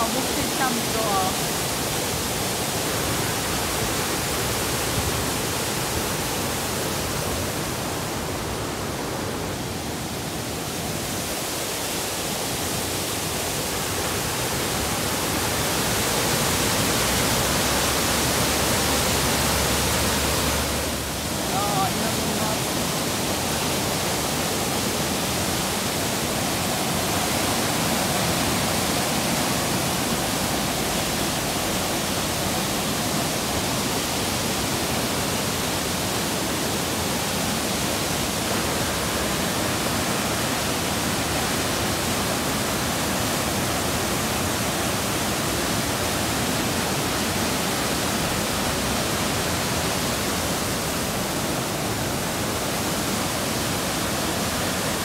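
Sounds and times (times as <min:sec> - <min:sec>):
waterfall rushing over boulders: 0:00.0 - 0:55.0.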